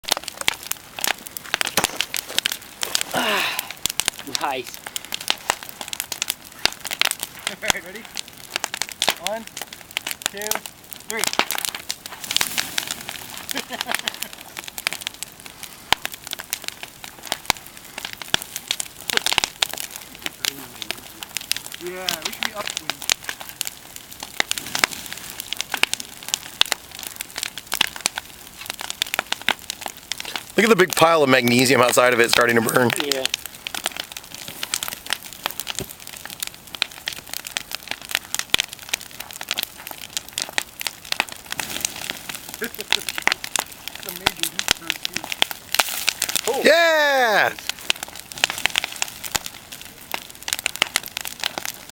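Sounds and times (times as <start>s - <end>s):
bonfire crackling and popping: 0.0s - 51.9s.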